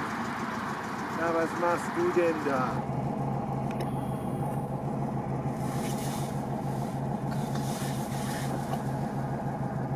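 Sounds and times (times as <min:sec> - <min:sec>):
car engine idling: 0:00.0 - 0:09.9.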